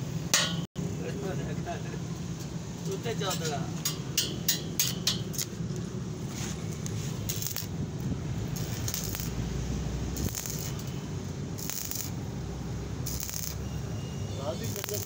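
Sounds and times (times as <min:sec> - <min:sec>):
welding arc crackling: 0:03.8 - 0:15.0
hissing flares: 0:04.5 - 0:15.0.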